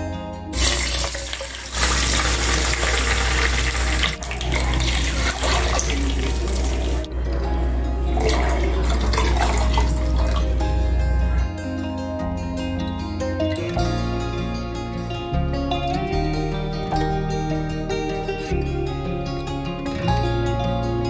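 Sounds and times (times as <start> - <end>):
liquid poured into hot fat sizzling: 0.6 - 7.1.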